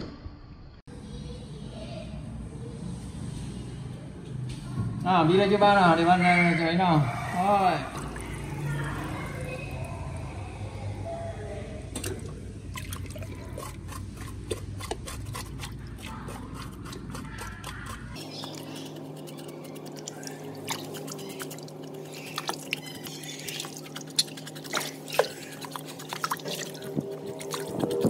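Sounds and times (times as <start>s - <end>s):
steady low hum: 7.2s - 28.0s
water dripping and splashing: 7.9s - 10.3s, 12.0s - 16.1s, 18.4s - 28.0s.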